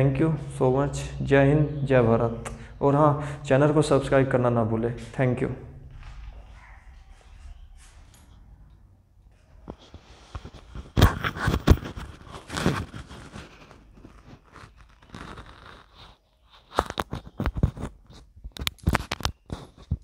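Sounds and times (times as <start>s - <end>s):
scraping and rustling: 3.7s - 20.0s
microphone handling clicks and knocks: 9.6s - 15.9s, 16.6s - 20.0s.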